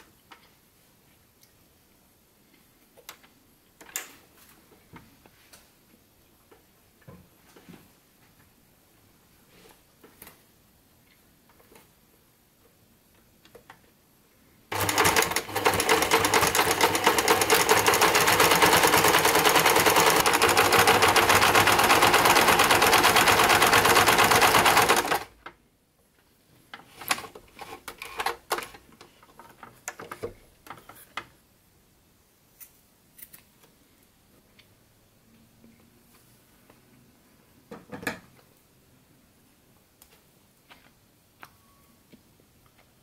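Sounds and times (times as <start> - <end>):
sewing machine stitching: 14.7 - 25.3.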